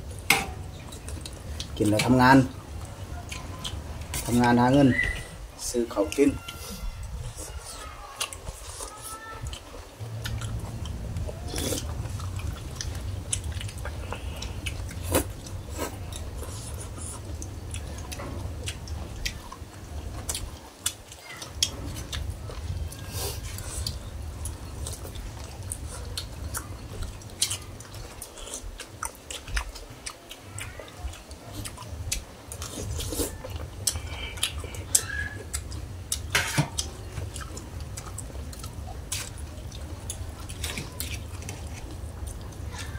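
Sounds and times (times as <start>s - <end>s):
people chewing: 0.0s - 42.9s
low rumble: 10.0s - 15.7s.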